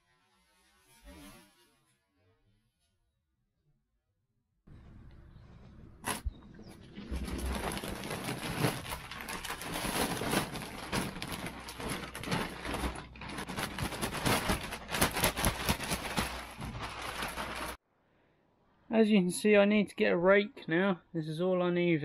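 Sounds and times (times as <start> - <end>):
plastic sack rustling: 6.0 - 17.8
manure spilling onto heap: 6.8 - 15.0.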